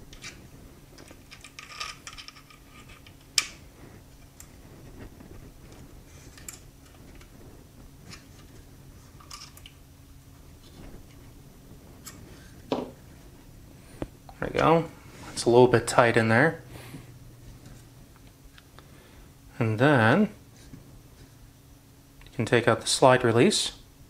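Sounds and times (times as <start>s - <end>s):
small metallic clicks and scrapes: 1.0s - 3.6s.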